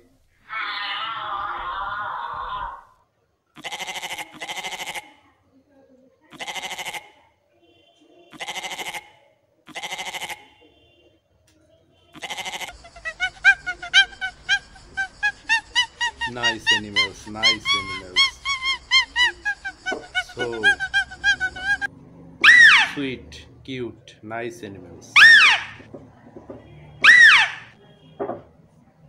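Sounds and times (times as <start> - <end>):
goat bleating: 3.6 - 5.2, 6.3 - 7.2, 8.3 - 10.6, 12.2 - 21.9
short high yelping calls: 12.2 - 23.0, 25.2 - 25.9, 27.0 - 27.8.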